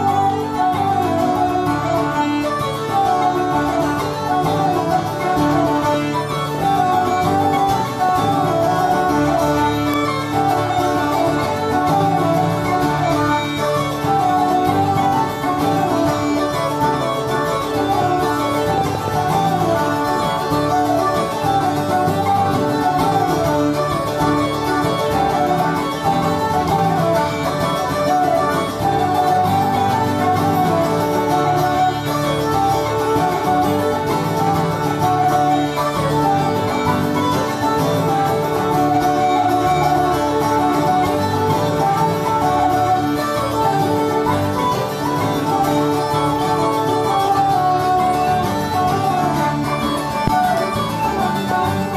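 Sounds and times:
plucked string instrument: 0.0 - 51.9
strummed acoustic guitar: 0.0 - 51.9
uilleann pipes melody with drone: 0.0 - 51.9.

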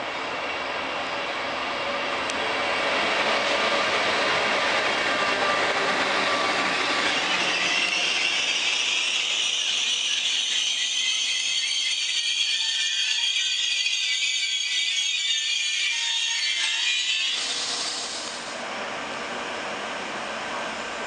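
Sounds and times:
low train rumble: 0.0 - 10.4, 17.8 - 21.0
train coaches rattling over track: 1.6 - 16.0.

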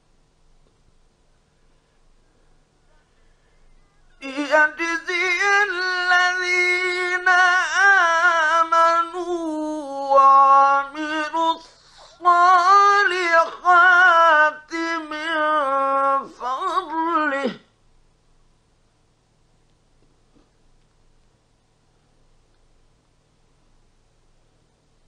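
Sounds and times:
man reciting melodically: 4.1 - 17.8
man breathing: 11.6 - 12.2.

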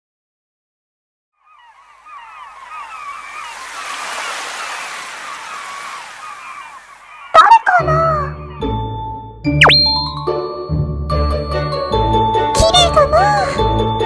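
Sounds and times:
short chirping calls: 1.4 - 7.7, 9.6 - 10.2
steady hissing wash: 1.9 - 7.3.

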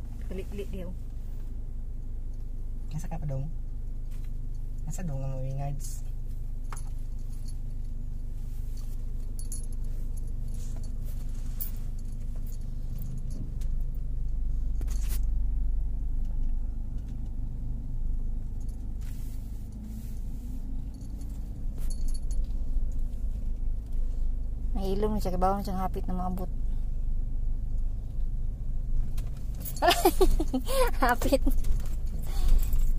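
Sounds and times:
car cabin rumble: 0.0 - 32.9
light metallic jingles and clicks: 6.6 - 8.0, 8.7 - 15.3, 20.7 - 24.1, 29.2 - 32.9.

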